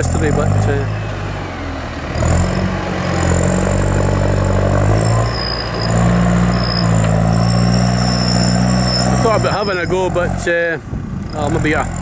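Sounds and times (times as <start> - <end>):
tractor engine under load: 0.0 - 12.0
thin high whistle: 5.1 - 9.5.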